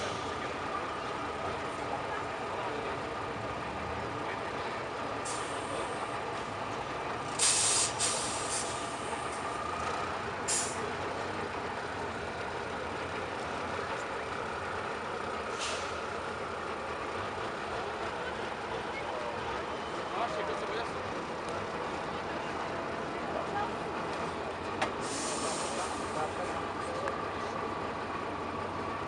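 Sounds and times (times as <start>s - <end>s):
truck engine running: 0.0s - 29.0s
air hissing: 7.4s - 8.8s, 25.0s - 26.0s.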